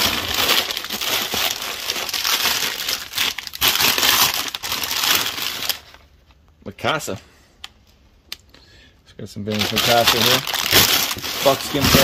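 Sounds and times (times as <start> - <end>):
newspaper rustling and crinkling: 9.5 - 12.0.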